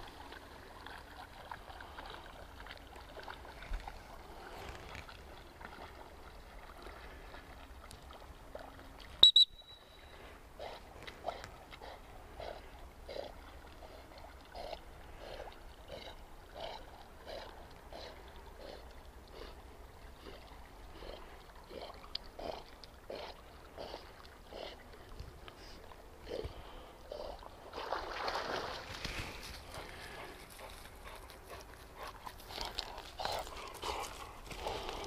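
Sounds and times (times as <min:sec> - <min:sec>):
dog paddling splashes: 0:27.4 - 0:31.0.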